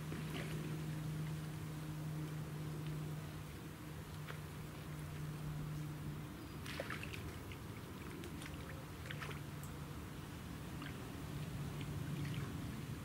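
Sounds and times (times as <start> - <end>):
low hum: 0.0 - 13.0
fish splashing at water surface: 6.6 - 9.6.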